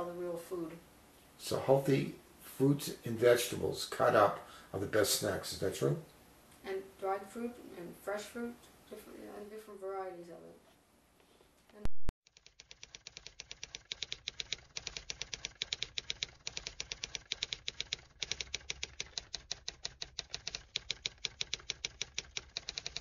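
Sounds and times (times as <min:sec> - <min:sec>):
typewriter keys clacking: 0:12.3 - 0:23.0.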